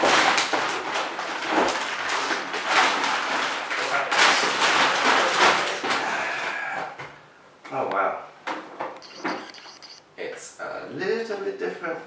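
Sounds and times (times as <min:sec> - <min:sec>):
plastic bag crinkling: 0:00.0 - 0:06.2.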